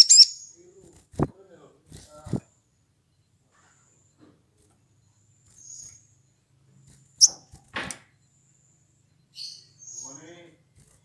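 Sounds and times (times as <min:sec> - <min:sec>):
bird chirping: 0:00.0 - 0:01.3, 0:01.9 - 0:11.0.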